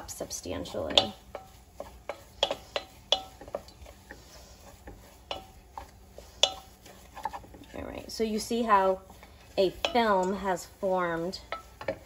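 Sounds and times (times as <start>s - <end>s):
spoon stirring thick paste: 0.0s - 12.0s
spoon knocking against pan: 0.8s - 3.8s, 4.8s - 5.6s, 6.4s - 6.7s, 9.8s - 10.4s.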